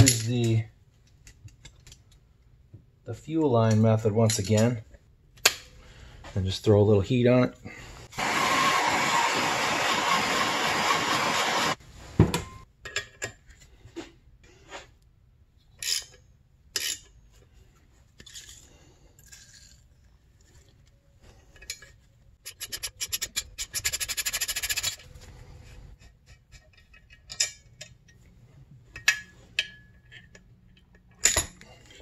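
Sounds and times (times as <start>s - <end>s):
gas torch hissing: 8.1s - 11.8s.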